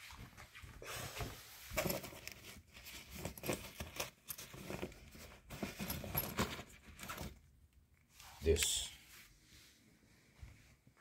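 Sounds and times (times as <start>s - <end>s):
rummaging through objects: 0.0s - 8.8s.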